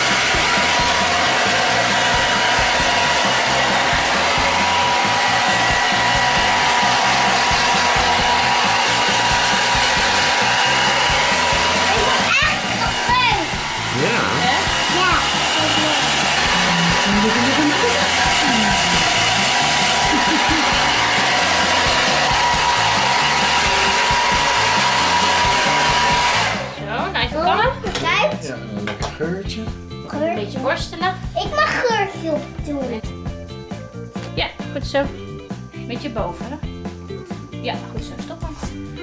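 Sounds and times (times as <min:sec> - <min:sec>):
hair dryer running: 0:00.0 - 0:28.0.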